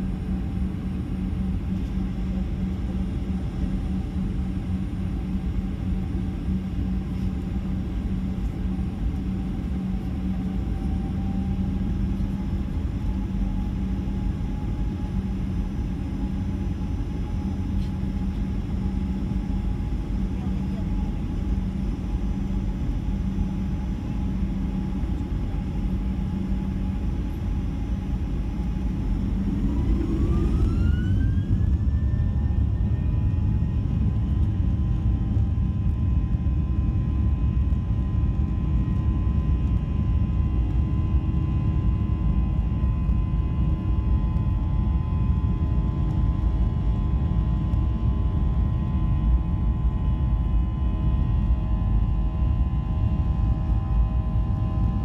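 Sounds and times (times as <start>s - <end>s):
jet engines spooling up: 27.5s - 34.0s.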